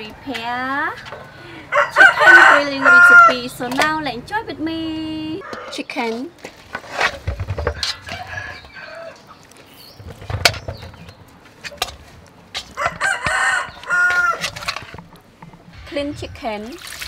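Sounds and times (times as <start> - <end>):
chicken calling: 1.3 - 3.4, 5.4 - 5.8, 12.7 - 14.6.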